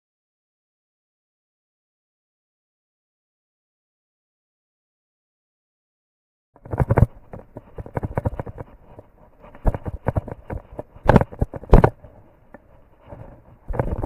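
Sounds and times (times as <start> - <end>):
camera handling knocks and rubbing: 6.6 - 14.0.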